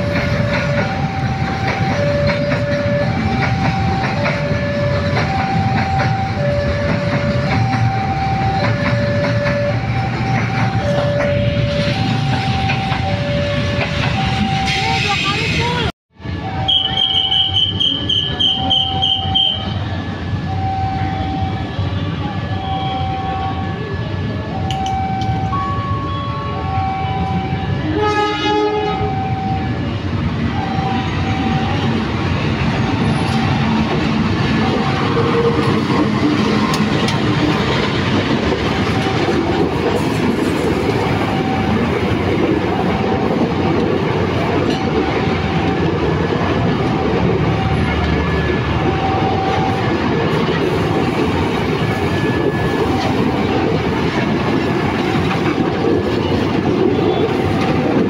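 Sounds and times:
train wheels clattering: 0.0s - 15.2s
level-crossing warning bell: 0.0s - 58.0s
train horn: 27.6s - 29.4s.

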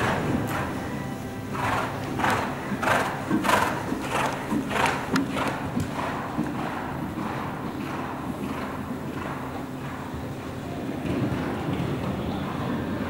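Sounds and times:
horse breathing out hard: 1.5s - 10.1s.

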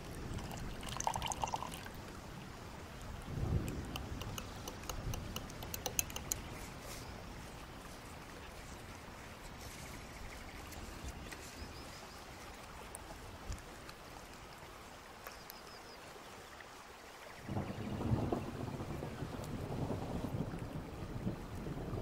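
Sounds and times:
wind rumble on microphone: 0.0s - 13.9s, 17.4s - 22.0s
small clicks: 3.6s - 6.7s.

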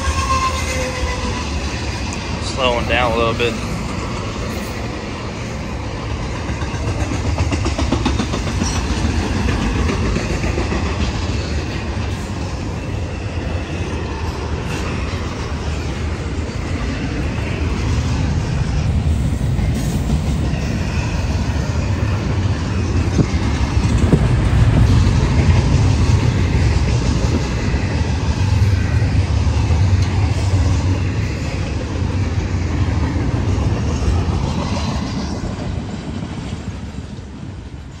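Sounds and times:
train rolling low rumble: 0.0s - 38.0s
wheel clatter on rails: 6.1s - 12.8s, 19.7s - 27.8s.

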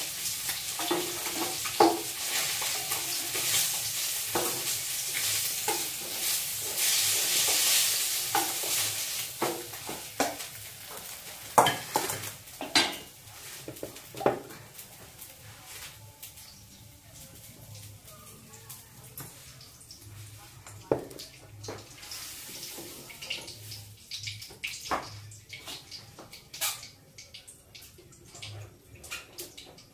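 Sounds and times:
food sizzling in hot oil: 0.0s - 29.9s
wooden spatula scraping and knocking pan: 11.0s - 14.6s.

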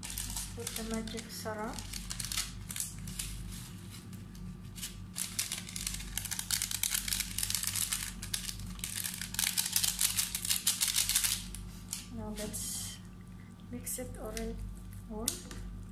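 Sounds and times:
packet crinkling and tearing: 0.0s - 3.6s, 4.2s - 12.1s.

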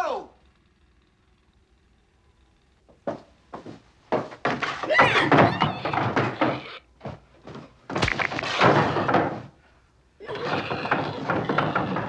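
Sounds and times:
dense clattering noise: 2.9s - 6.8s, 7.5s - 9.6s
rattling scuffle: 3.1s - 9.6s, 10.3s - 12.0s.

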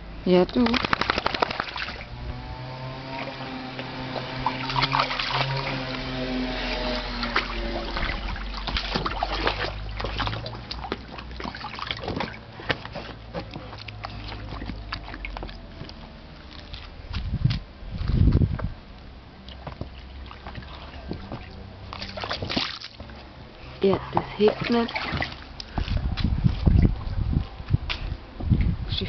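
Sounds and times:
steady low hum: 0.0s - 29.0s
dog splashing in water: 0.5s - 17.0s, 19.4s - 23.1s, 23.9s - 26.9s.

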